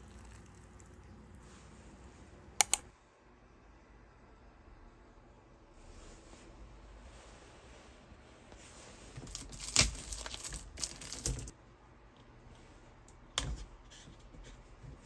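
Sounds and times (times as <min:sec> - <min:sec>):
sharp click: 0:02.6 - 0:02.8
plastic wrapper crinkling and tearing: 0:09.2 - 0:11.5.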